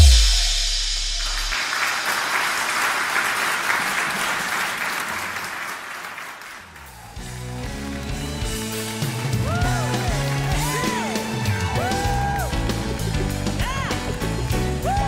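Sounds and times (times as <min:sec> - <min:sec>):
deep bass tone: 0:00.0 - 0:01.5
audience applauding: 0:01.2 - 0:15.0
band playing: 0:07.2 - 0:15.0.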